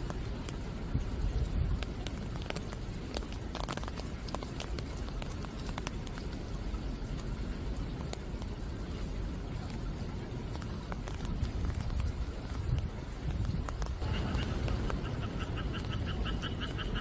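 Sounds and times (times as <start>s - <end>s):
raindrops tapping on leaves: 0.0s - 17.0s
steady low rumble: 0.0s - 17.0s.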